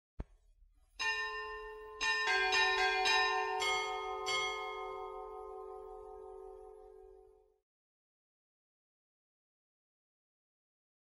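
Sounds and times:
church bells ringing: 1.0s - 7.4s.

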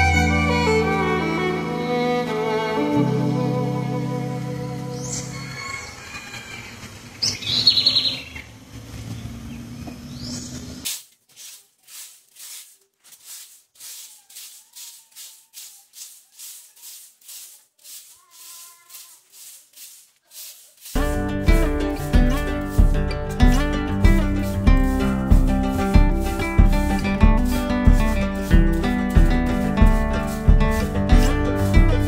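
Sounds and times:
background music: 0.0s - 5.6s, 21.0s - 32.0s
birds chirping: 4.9s - 10.8s
broom sweeping a floor: 10.8s - 32.0s.

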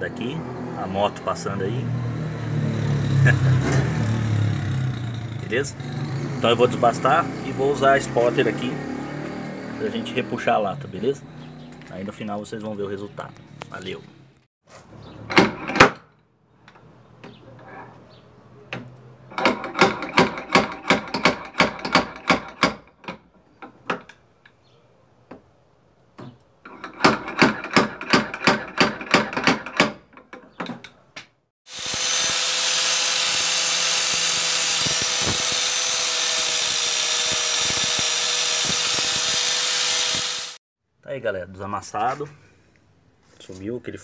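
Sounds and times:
angle grinder whining: 4.5s - 11.9s, 31.7s - 40.6s.

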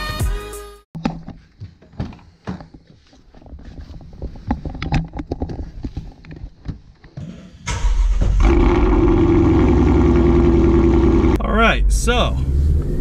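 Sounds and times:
footsteps: 1.0s - 7.5s.

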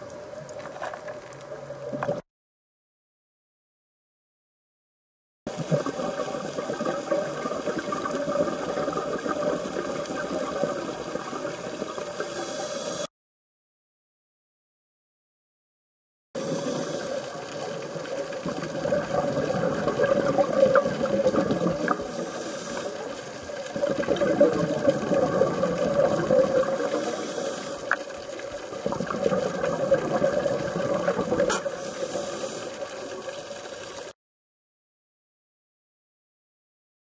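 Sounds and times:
underwater exhaust bubbles: 5.5s - 13.1s, 16.4s - 34.1s
diver regulator breathing: 12.1s - 13.1s, 16.4s - 17.6s, 21.8s - 23.6s, 26.5s - 28.2s, 31.4s - 33.2s.

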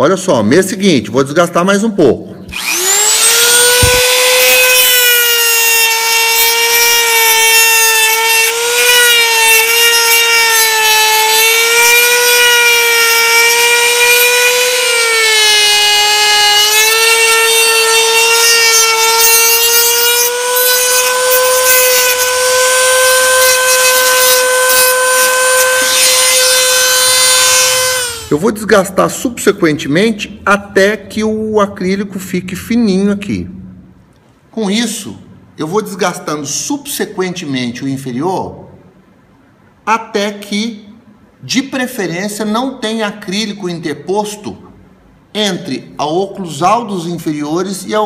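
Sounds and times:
rotary handpiece grinding whine: 2.5s - 28.4s.

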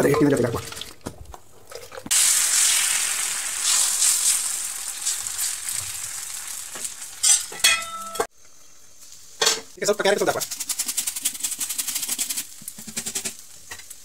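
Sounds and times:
batter sizzling in a hot pan: 2.1s - 7.6s.

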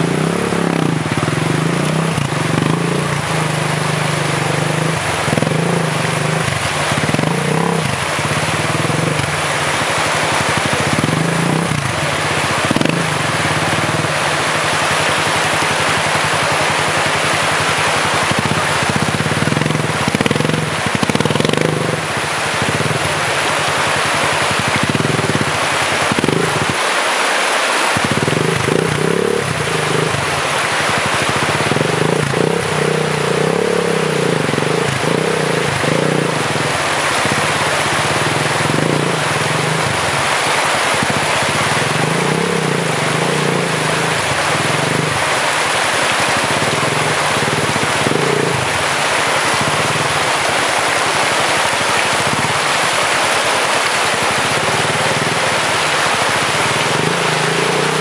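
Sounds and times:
dirt bike engine revving: 0.0s - 58.0s
rushing stream: 0.0s - 58.0s.

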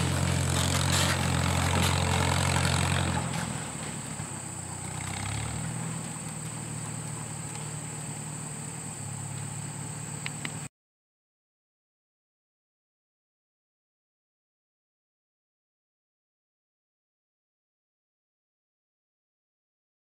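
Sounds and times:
tractor engine running: 0.0s - 10.7s.

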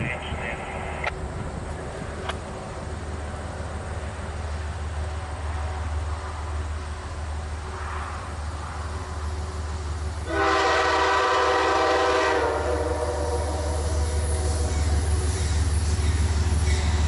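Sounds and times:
train rumbling: 0.0s - 17.0s
locomotive air horn: 10.2s - 14.8s.

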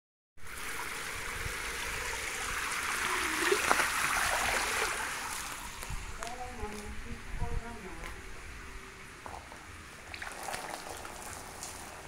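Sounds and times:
water spray splashing on concrete: 0.5s - 6.9s, 10.1s - 12.0s.

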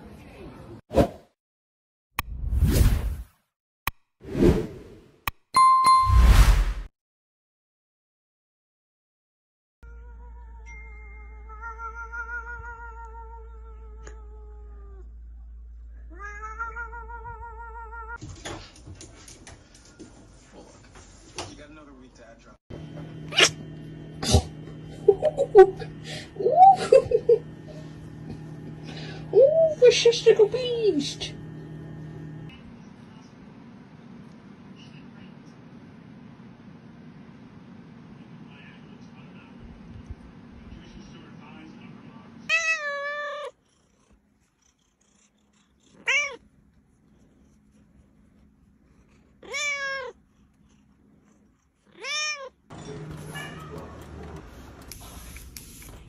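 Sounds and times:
cat meowing: 9.9s - 15.0s, 16.1s - 18.2s, 42.5s - 43.6s, 45.9s - 46.4s, 49.4s - 50.2s, 51.9s - 52.6s.

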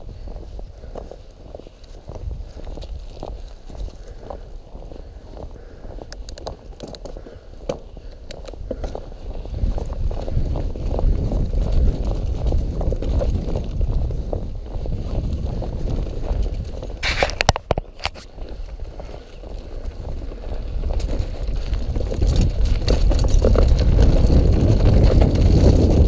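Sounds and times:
wind on microphone: 0.0s - 6.7s, 7.9s - 26.0s
bike clicks and rattles: 0.0s - 26.0s
tyres rumbling on dirt: 8.6s - 26.0s
harsh scraping: 17.0s - 18.3s.

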